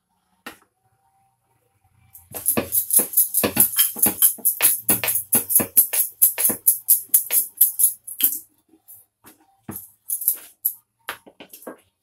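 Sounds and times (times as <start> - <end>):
bangles jingling: 2.2 - 8.4, 9.7 - 10.8
rolling pin on wooden board: 2.3 - 7.4.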